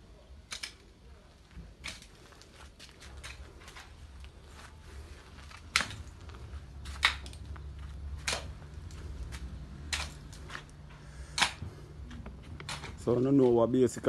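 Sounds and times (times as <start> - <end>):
pickaxe striking packed earth: 1.8 - 2.4, 5.5 - 6.2, 6.8 - 7.4, 8.2 - 8.6, 9.8 - 10.4, 11.3 - 11.7.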